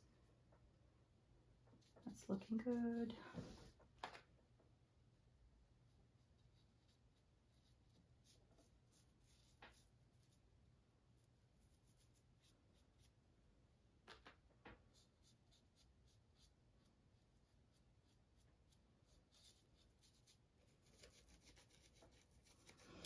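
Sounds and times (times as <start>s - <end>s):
brush scratching on canvas: 5.9s - 10.5s, 11.2s - 13.2s, 14.8s - 23.0s.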